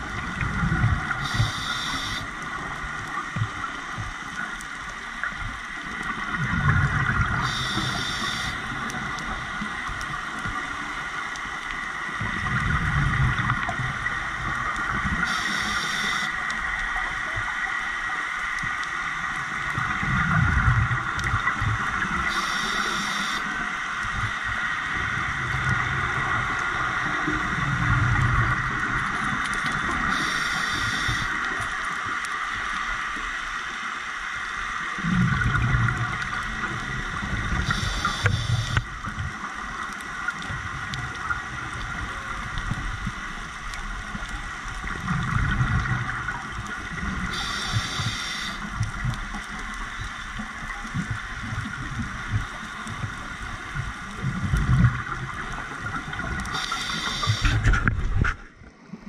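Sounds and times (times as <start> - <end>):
exhaled air bubbling: 0.0 - 17.6, 35.0 - 58.6
steady hiss: 0.0 - 58.1
inhalation hiss: 1.2 - 2.3, 7.4 - 8.6, 15.2 - 16.4, 22.3 - 23.5, 30.1 - 31.4, 37.6 - 38.8, 47.3 - 48.7, 56.5 - 57.7.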